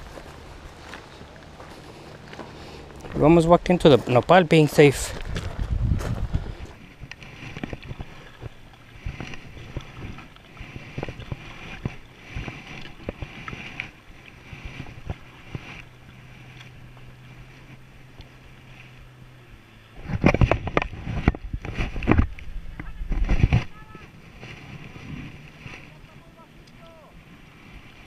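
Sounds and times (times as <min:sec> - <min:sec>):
paddle splashing in water: 0:06.8 - 0:28.0.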